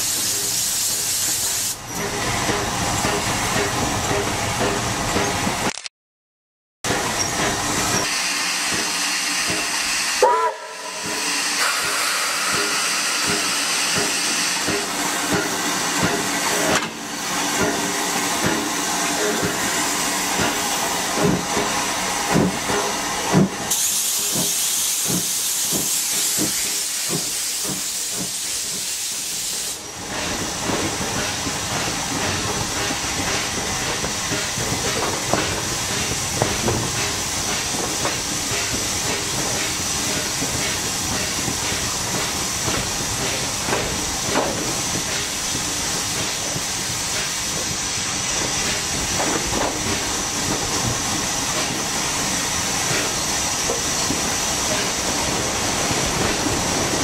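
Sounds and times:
steam hissing: 0.0s - 1.8s, 7.1s - 57.0s
steam locomotive exhaust chuffs: 6.9s - 57.0s.

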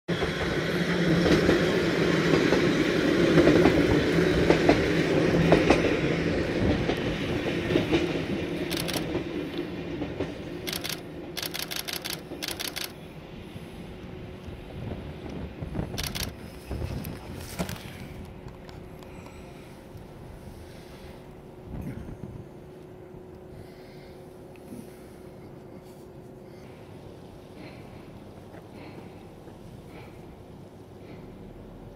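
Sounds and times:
train wheels clacking over rail joints: 0.1s - 12.9s
electric train hum: 0.1s - 31.9s.

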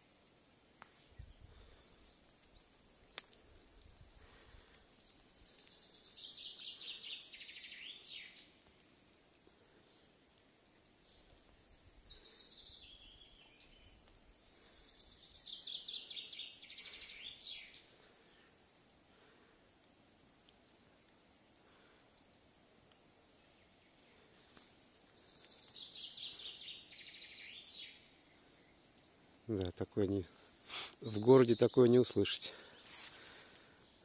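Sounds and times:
nightingale singing: 5.1s - 8.6s, 11.0s - 18.2s, 25.1s - 28.8s, 30.1s - 32.9s.

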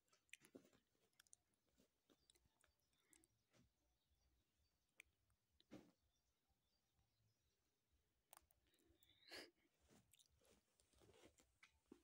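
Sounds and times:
soft rustle of bedding: 9.8s - 12.0s.

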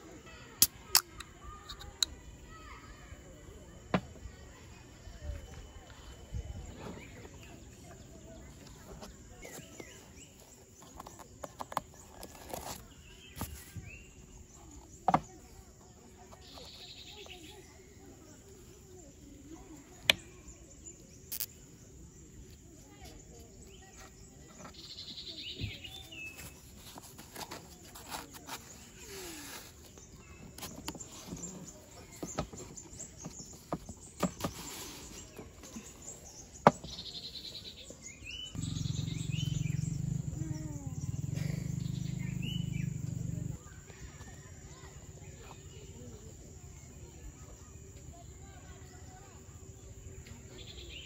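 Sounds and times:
birds chirping: 0.0s - 51.0s
wooden box knocks and clicks: 36.6s - 37.0s.

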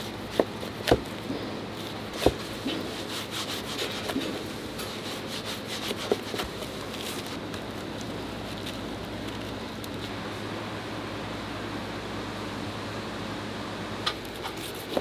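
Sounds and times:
low background hum: 0.0s - 15.0s
knife sawing through roll: 2.1s - 6.5s.

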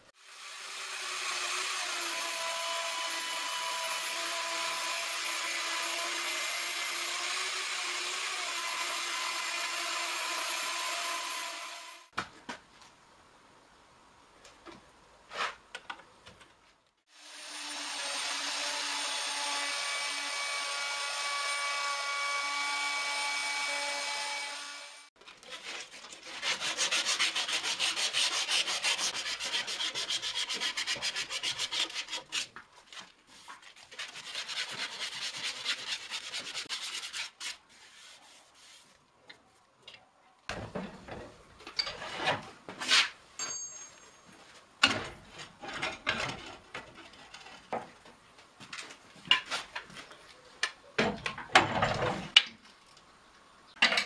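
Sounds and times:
sandpaper rubbing on wood: 25.6s - 32.5s, 33.3s - 39.0s.

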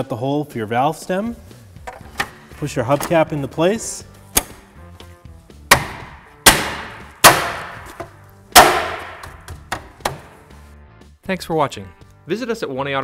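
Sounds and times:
hand smacking hubcap: 5.7s - 10.5s.

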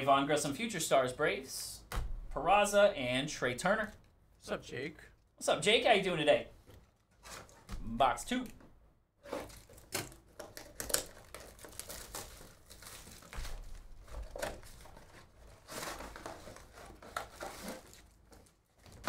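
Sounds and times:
cardboard tearing: 9.2s - 19.0s
wrapping crinkling: 9.3s - 19.0s.

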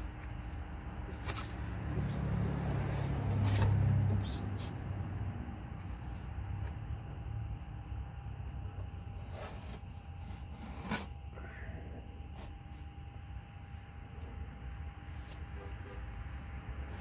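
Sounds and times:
decal peeling and scraping: 0.0s - 5.1s, 8.2s - 11.3s
steady low rumble: 0.0s - 10.4s.

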